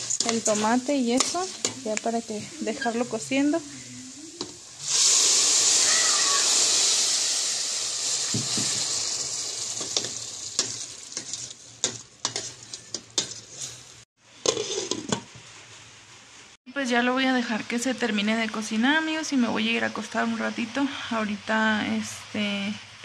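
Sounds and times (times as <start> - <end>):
tomato sizzling in hot oil: 0.0 - 15.6.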